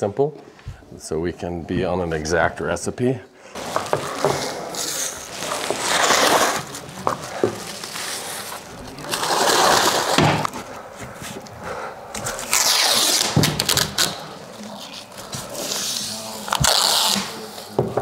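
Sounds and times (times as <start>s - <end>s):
plastic crinkling and tape ripping: 3.6s - 10.6s, 12.2s - 17.8s.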